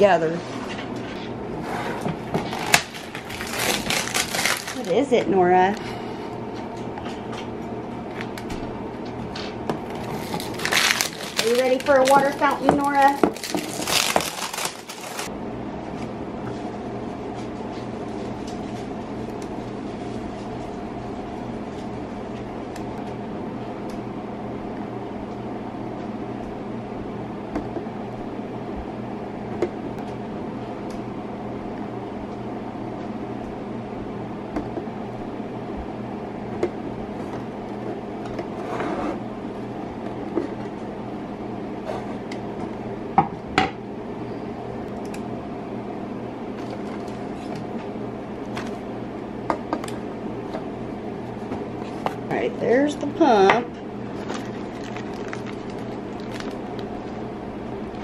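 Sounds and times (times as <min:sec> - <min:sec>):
steady low hum: 0:00.0 - 0:58.0
plastic wrapping rustle: 0:02.4 - 0:05.1, 0:09.9 - 0:15.3, 0:54.1 - 0:57.1.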